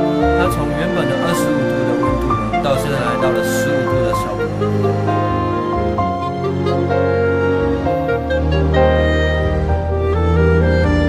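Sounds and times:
background music with held notes: 0:00.0 - 0:11.0.

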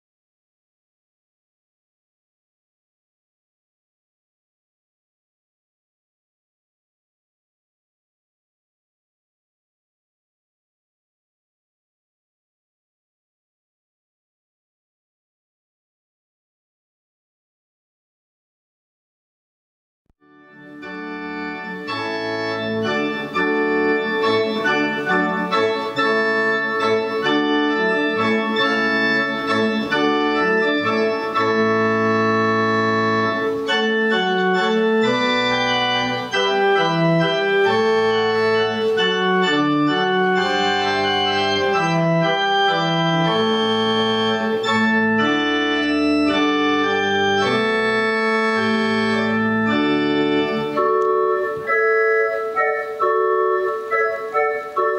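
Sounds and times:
electronic organ chords: 0:20.2 - 0:54.9
organ pedal bass line: 0:20.3 - 0:54.9.

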